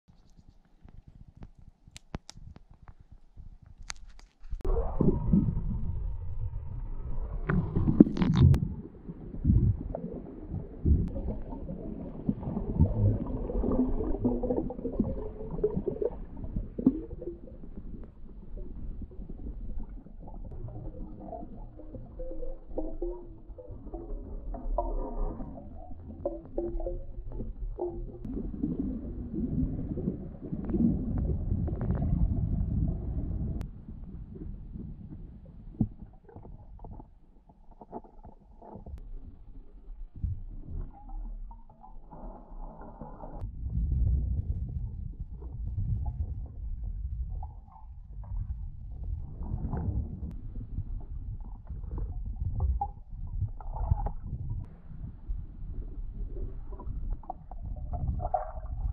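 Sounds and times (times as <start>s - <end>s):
faint clicks: 0.1s - 4.7s
underwater rumbling and knocking: 0.1s - 58.9s.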